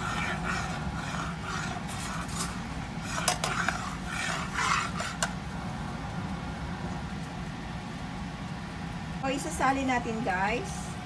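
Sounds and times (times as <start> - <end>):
fork scraping caramel in a pan: 0.0 - 5.4.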